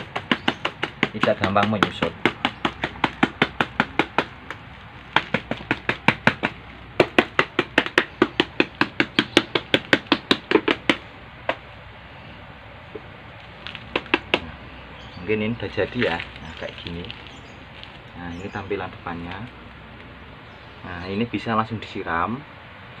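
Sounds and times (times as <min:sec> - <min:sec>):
rapid taps on a plastic pot: 0:00.0 - 0:11.6, 0:13.9 - 0:14.5.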